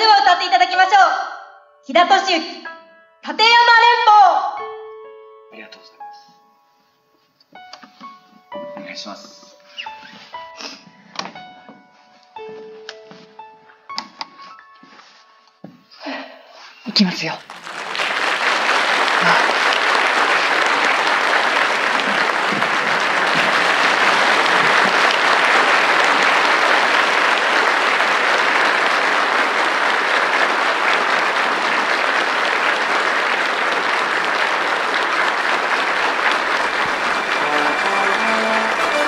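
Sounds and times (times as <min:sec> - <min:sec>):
crowd applauding: 0:17.4 - 0:39.0
instrumental song intro: 0:36.8 - 0:39.0.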